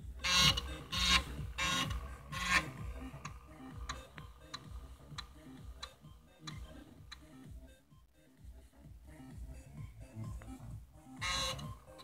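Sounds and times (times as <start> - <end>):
floppy drive head grinding: 0.0 - 6.0, 11.2 - 12.0
floppy drive clicks: 0.0 - 7.3.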